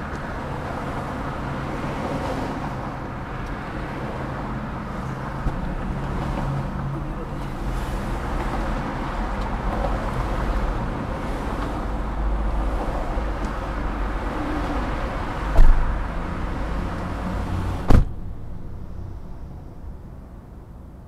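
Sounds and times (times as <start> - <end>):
freeway traffic passing: 0.0 - 21.0
sharp knock: 15.6 - 15.9, 17.9 - 18.3.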